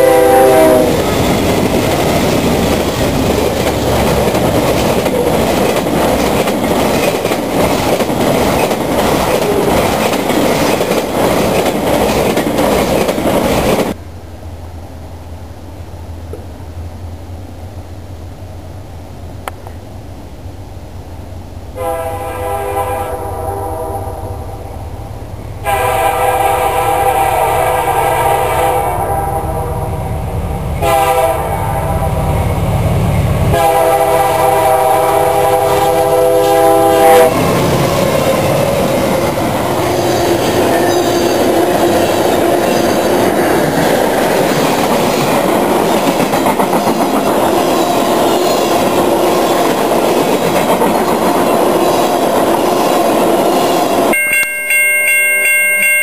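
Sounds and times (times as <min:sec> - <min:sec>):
train air horn blasts: 0:00.0 - 0:01.2, 0:21.7 - 0:24.7, 0:25.6 - 0:30.2, 0:30.8 - 0:32.2, 0:33.5 - 0:37.4
locomotive engine rumble: 0:00.0 - 0:22.0
train wheels clicking on rails: 0:00.6 - 0:14.0, 0:32.2 - 0:54.2.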